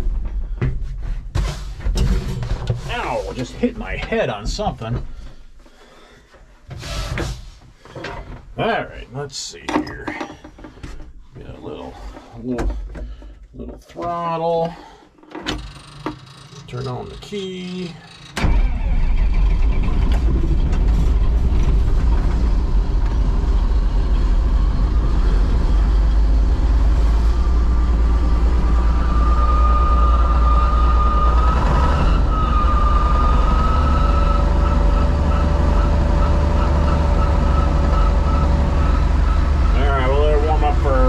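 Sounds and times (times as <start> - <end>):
combine engine starting: 15.5 - 41.0
engine deep rumble: 16.7 - 41.0
high squeal: 28.7 - 41.0.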